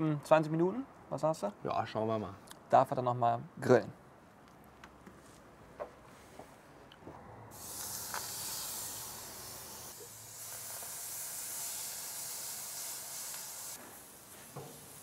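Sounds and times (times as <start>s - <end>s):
fish sizzling on hot salt block: 7.5s - 15.0s.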